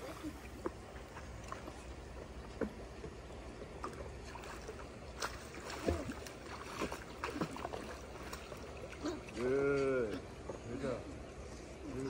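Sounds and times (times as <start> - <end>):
child splashing in pool water: 4.2 - 9.6.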